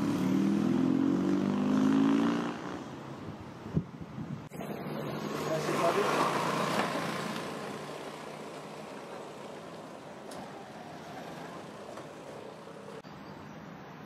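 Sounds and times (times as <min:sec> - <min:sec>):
outdoor background noise: 0:00.0 - 0:14.0
motor scooter riding away: 0:04.5 - 0:13.0.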